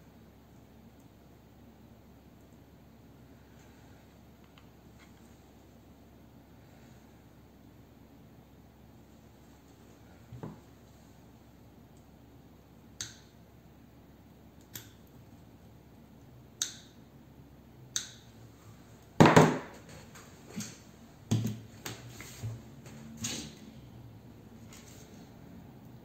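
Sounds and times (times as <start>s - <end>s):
tools knocking on wooden table: 19.2s - 19.8s.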